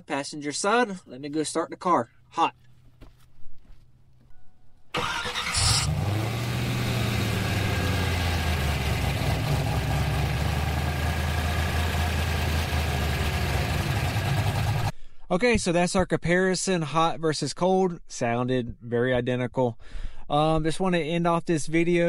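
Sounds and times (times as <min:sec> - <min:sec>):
engine starter cranking: 0:04.9 - 0:09.1
car engine idling: 0:05.0 - 0:14.9.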